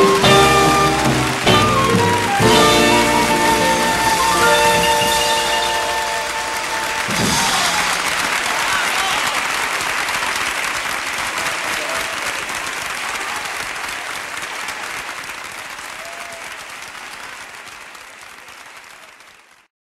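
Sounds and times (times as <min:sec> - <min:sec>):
crowd applauding: 0:00.0 - 0:19.7.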